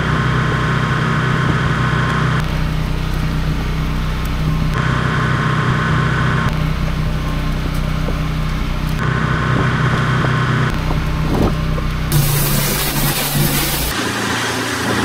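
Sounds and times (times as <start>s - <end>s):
pressure washer engine running: 0.0s - 15.0s
water jet hissing: 12.1s - 15.0s.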